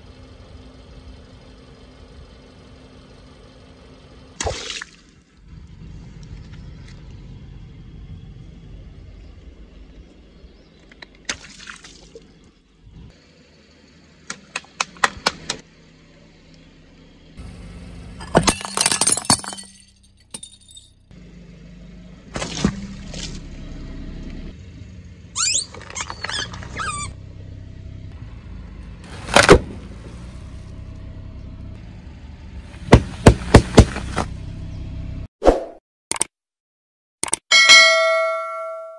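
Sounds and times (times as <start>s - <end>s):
car engine running low: 0.0s - 4.4s, 5.0s - 11.3s, 12.0s - 35.3s
ceramic plate shattering: 18.2s - 20.8s.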